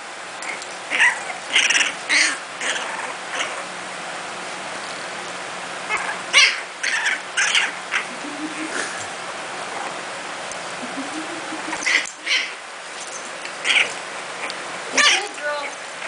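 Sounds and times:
puppy yipping and squealing: 0:00.4 - 0:03.6, 0:05.9 - 0:09.1, 0:11.5 - 0:15.4.

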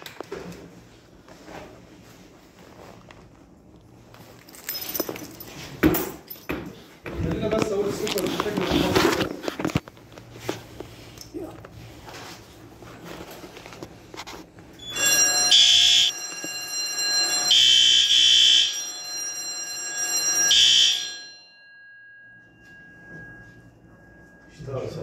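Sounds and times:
fire alarm shrill tone: 0:14.7 - 0:25.0
faint steady tone: 0:21.3 - 0:25.0.

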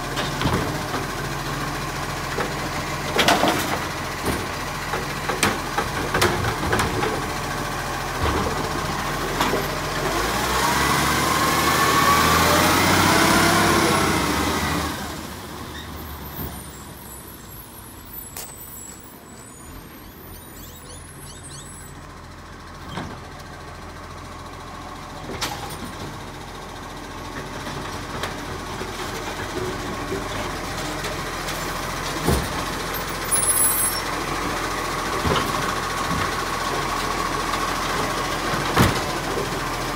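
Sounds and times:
garbage truck diesel engine revving: 0:00.0 - 0:16.3.

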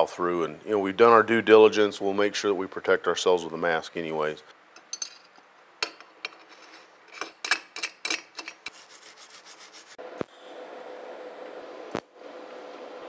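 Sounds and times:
metal parts clicking and scraping: 0:04.8 - 0:08.8.

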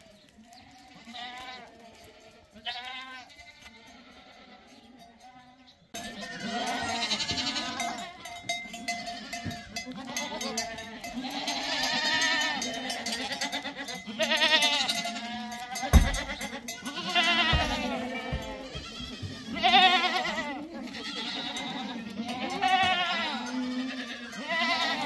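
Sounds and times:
livestock bleating: 0:00.0 - 0:25.0
thump: 0:15.9 - 0:16.4, 0:17.6 - 0:18.5.

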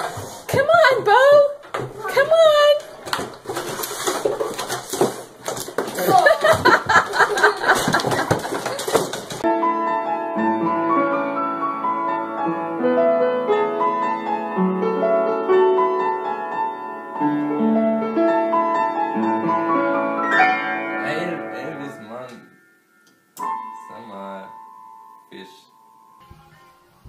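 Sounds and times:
upright piano playing slowly: 0:09.4 - 0:27.0.

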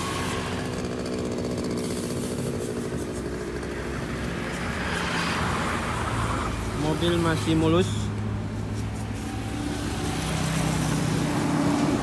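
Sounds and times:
motorcycle engine running: 0:00.0 - 0:05.1.

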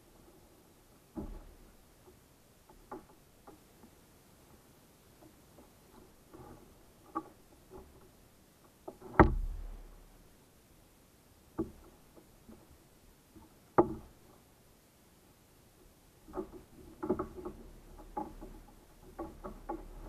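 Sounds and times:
hollow knocks on plastic hull: 0:09.1 - 0:09.8.

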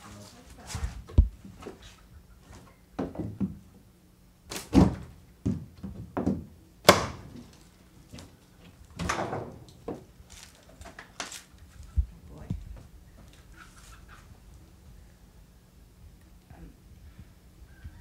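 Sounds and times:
knocks and thuds on wooden door: 0:03.0 - 0:03.6, 0:04.7 - 0:07.3, 0:09.0 - 0:10.1.

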